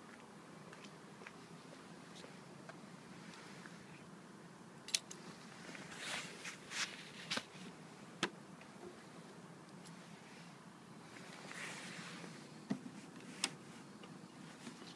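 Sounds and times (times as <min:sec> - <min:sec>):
low hiss: 0:00.0 - 0:14.9
short rustles: 0:05.5 - 0:07.7, 0:11.0 - 0:13.9.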